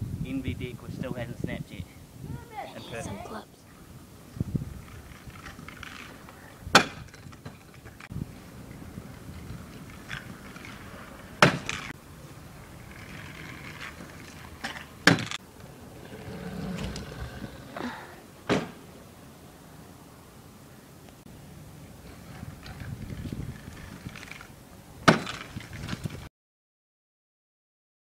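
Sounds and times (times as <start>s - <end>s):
wheels rolling over concrete: 4.3s - 18.2s, 22.0s - 26.3s
scooter deck landing clacks: 14.0s - 15.4s, 25.0s - 26.1s.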